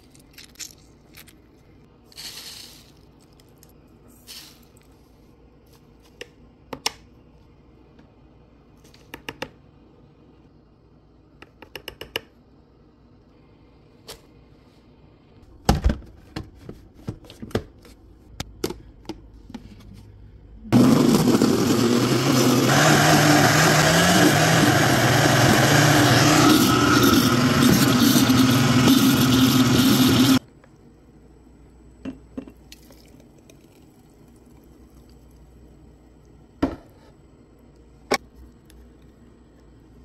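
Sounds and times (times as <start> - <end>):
blender running: 20.7 - 30.4.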